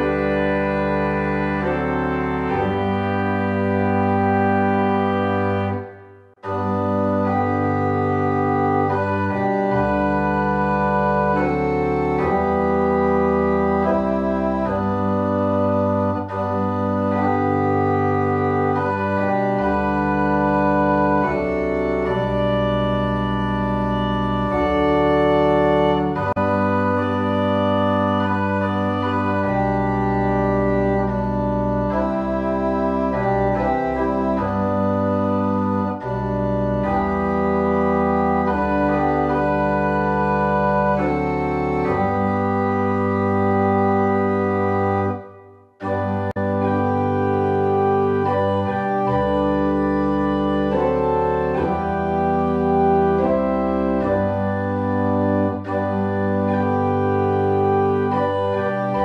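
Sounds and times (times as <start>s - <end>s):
organ playing a hymn: 0.0s - 59.0s.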